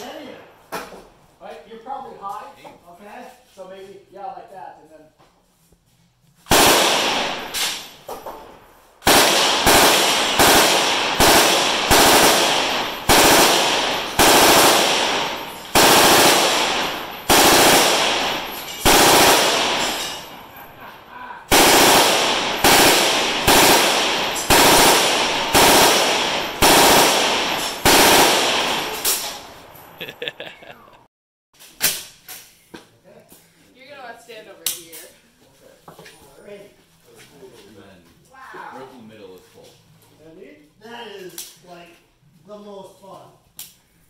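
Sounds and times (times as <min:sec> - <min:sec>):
machine gun firing automatic bursts: 0:06.5 - 0:07.5, 0:09.0 - 0:20.4, 0:21.5 - 0:29.0.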